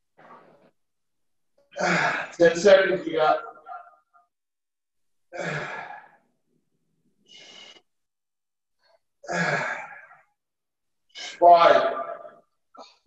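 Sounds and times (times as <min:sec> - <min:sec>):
man exhaling with effort: 0:05.4 - 0:06.2.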